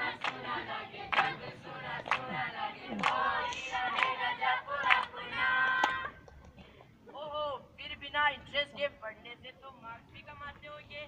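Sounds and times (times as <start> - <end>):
young voices singing together: 0.0 - 6.2.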